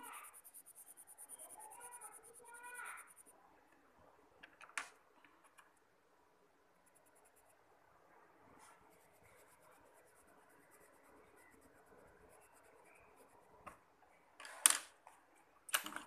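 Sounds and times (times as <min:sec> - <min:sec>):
coloured pencil scratching on paper: 0:00.0 - 0:03.4, 0:06.8 - 0:07.7, 0:08.5 - 0:13.8.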